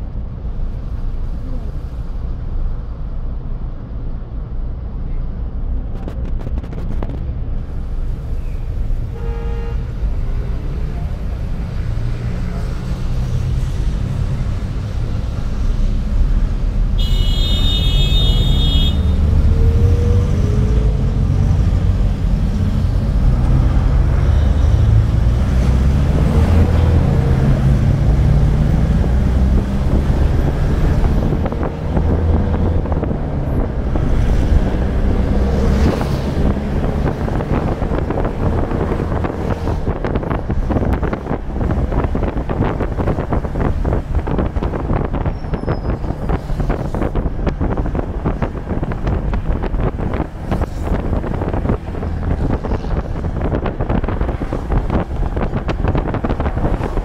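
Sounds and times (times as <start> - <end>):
passing vehicle engines: 0.0 - 57.0
traffic rumble of engines and tyres: 0.0 - 57.0
short horn toot: 9.1 - 9.8, 17.0 - 19.2
high-pitched horn blast: 9.1 - 9.9, 17.0 - 19.2.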